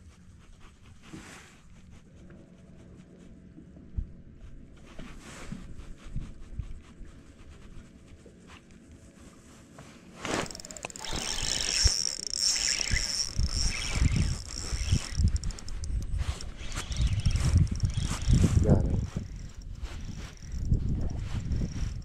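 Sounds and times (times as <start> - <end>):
fishing reel whirring: 10.2 - 22.0
rod knocking: 10.3 - 20.9.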